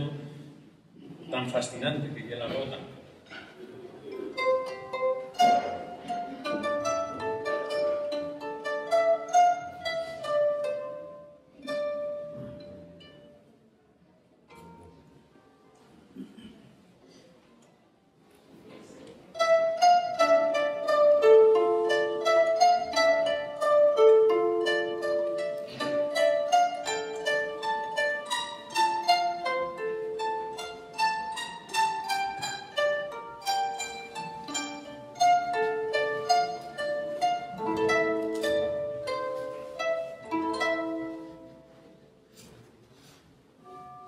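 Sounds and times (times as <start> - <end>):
plucked harp melody: 4.0 - 13.5, 14.5 - 15.2, 19.4 - 42.4, 43.6 - 44.0.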